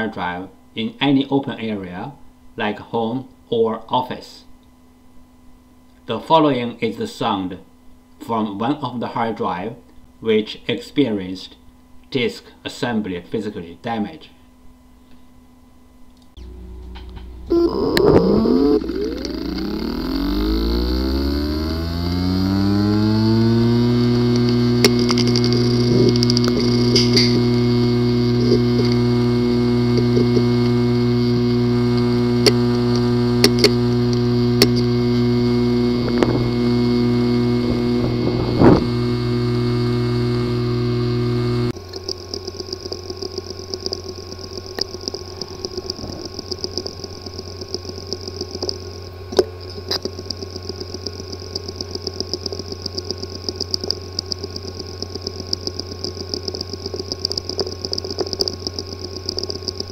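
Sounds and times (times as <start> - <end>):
hard drive buzzing: 14.7 - 59.9
hard drive clicking: 16.2 - 59.9
hard drive whirring: 16.2 - 59.9
hard drive ticking: 16.3 - 59.9.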